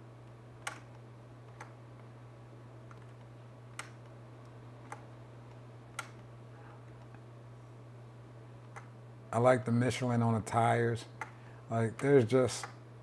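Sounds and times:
low electrical hum: 0.0s - 13.0s
computer mouse clicks: 0.6s - 1.8s, 2.9s - 4.1s, 4.8s - 6.3s, 8.6s - 8.9s.

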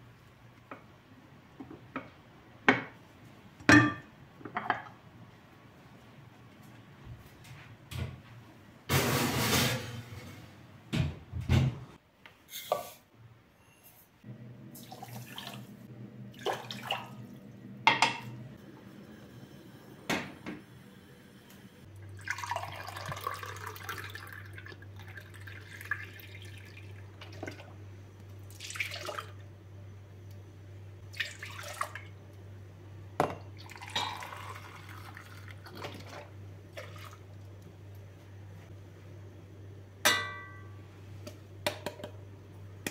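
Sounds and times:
low steady hum: 14.2s - 42.9s
milk pouring into metal pot: 22.2s - 27.6s, 33.6s - 37.3s.

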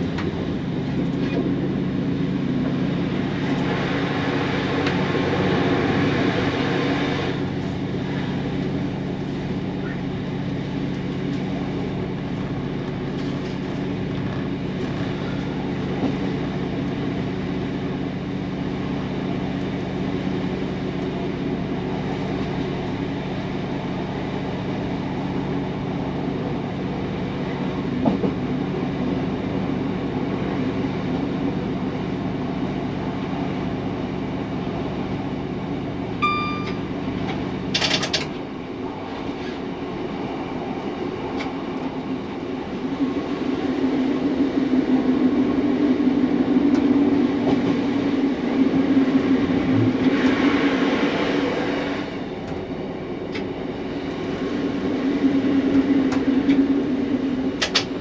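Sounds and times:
diesel engine drone: 0.0s - 58.0s
wheels rumbling on rail: 0.0s - 58.0s
electronic beep: 36.2s - 36.8s.

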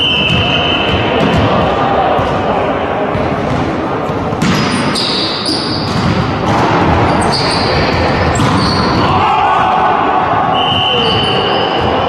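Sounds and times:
volleyball being struck: 4.4s - 9.1s
shoe squeaks on court floor: 4.5s - 6.0s, 7.1s - 9.0s.

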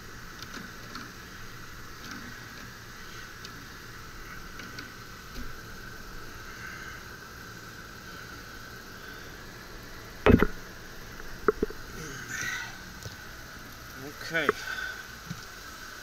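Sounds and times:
steady background hiss: 0.0s - 16.0s
low thump: 10.3s - 10.6s.

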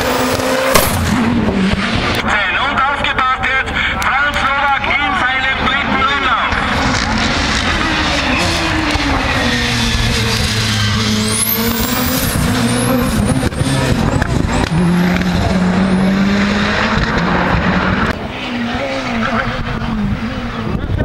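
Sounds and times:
race car engine passing by: 5.4s - 21.0s.

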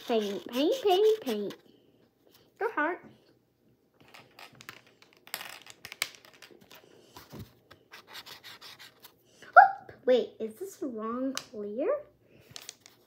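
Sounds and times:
pen tip scratching on canvas board: 0.0s - 1.6s
clicks and taps of pens and caps: 4.0s - 6.8s, 12.4s - 13.0s.

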